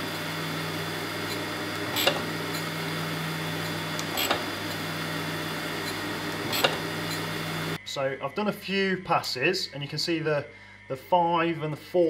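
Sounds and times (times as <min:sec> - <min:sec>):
surface grinder humming: 0:00.0 - 0:07.8.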